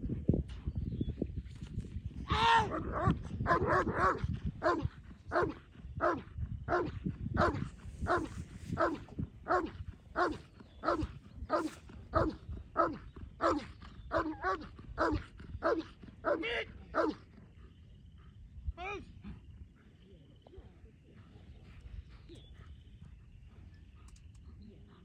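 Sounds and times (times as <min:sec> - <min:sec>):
dog barking: 0:02.9 - 0:16.4, 0:17.0 - 0:17.2.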